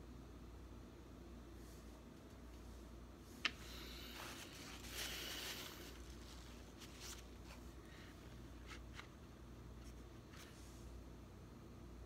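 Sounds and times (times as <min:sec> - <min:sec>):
soft rustle: 0:01.6 - 0:11.0.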